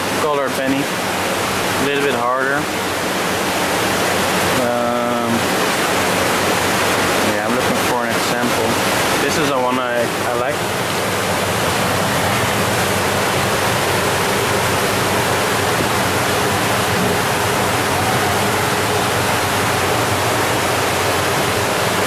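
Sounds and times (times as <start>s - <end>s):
water rushing: 0.0s - 22.0s.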